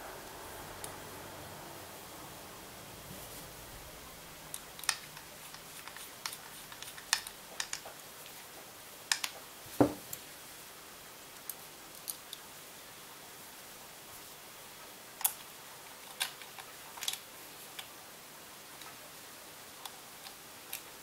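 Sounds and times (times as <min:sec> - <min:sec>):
small metallic clicks and taps: 0:04.5 - 0:08.0, 0:09.1 - 0:09.4.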